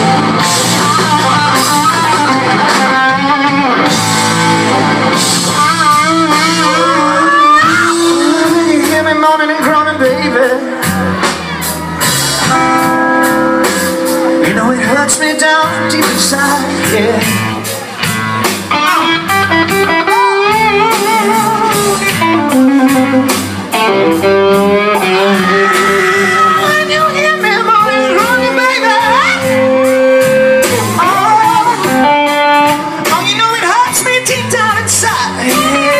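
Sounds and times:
live rock band playing blues: 0.0s - 35.9s
man singing into a microphone: 6.4s - 11.0s, 14.3s - 17.7s, 30.9s - 32.1s, 33.0s - 35.9s.

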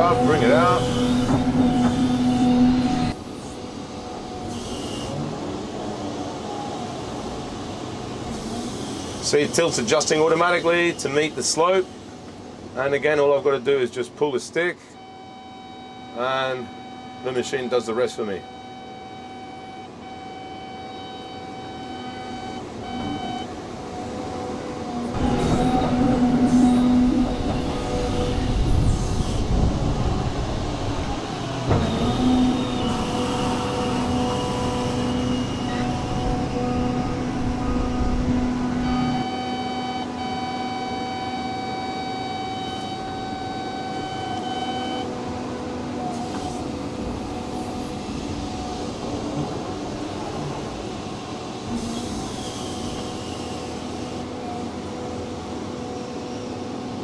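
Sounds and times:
steady high tone: 0.0s - 5.1s, 14.6s - 49.2s
excavator engine and hydraulics: 0.0s - 57.0s.

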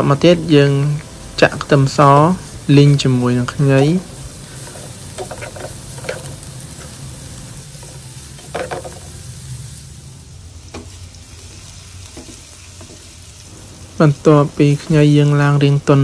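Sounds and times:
ginger sizzling in hot oil: 0.0s - 16.0s
spatula scraping and knocking pan: 3.7s - 7.0s, 7.8s - 9.2s, 12.1s - 13.2s.

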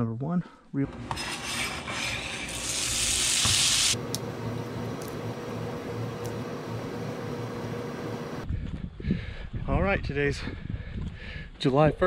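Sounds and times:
meat sizzling in a hot pan: 2.6s - 4.0s.

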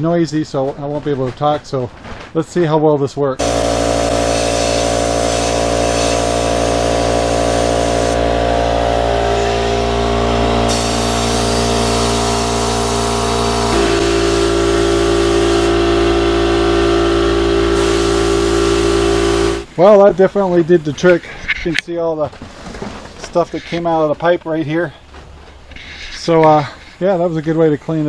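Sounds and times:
compressed air hissing into pipe: 3.4s - 8.2s, 10.6s - 15.7s, 17.6s - 19.6s.

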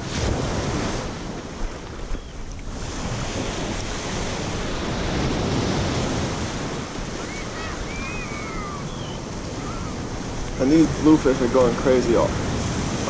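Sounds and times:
surf washing up sand: 0.0s - 13.0s
wind buffeting microphone: 0.0s - 13.0s
short bird calls: 7.2s - 10.0s.

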